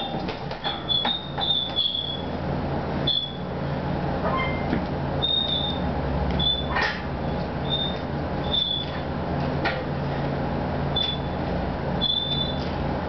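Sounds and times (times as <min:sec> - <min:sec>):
steady low hum: 0:00.0 - 0:13.0
chains squeaking: 0:04.3 - 0:06.8, 0:07.6 - 0:09.0, 0:11.0 - 0:11.4, 0:12.0 - 0:12.6.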